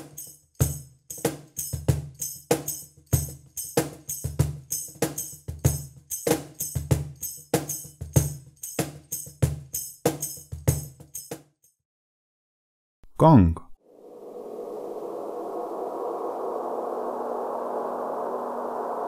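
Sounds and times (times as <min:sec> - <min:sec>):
foot tambourine jingles: 0:00.0 - 0:11.8.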